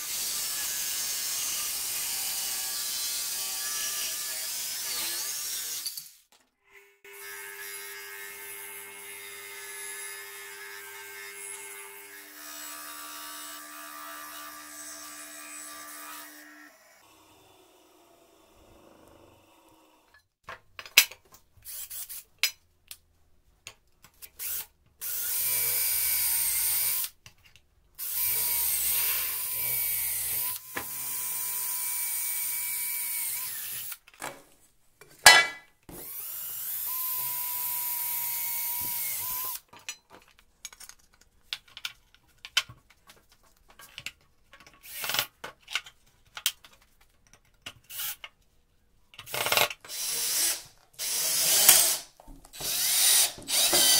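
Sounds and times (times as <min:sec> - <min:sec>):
cordless drill boring through metal: 0:28.0 - 0:34.0, 0:35.9 - 0:39.7, 0:47.9 - 0:48.2, 0:49.3 - 0:53.9.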